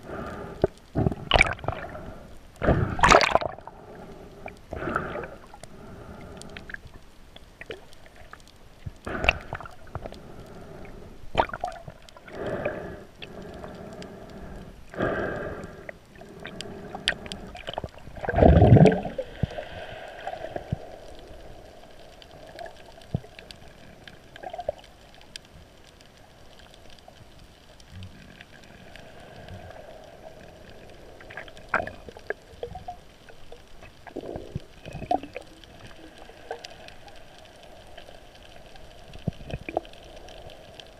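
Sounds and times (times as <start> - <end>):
muffled underwater gurgling: 8.9 - 25.0, 30.8 - 37.4.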